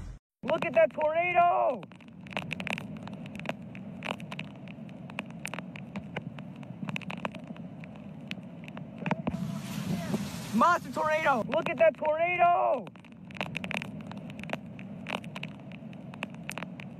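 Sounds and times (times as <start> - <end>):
sharp crackles and clicks: 0.0 - 16.9
car road noise on wet road: 5.1 - 11.6
loud hiss: 9.2 - 11.4.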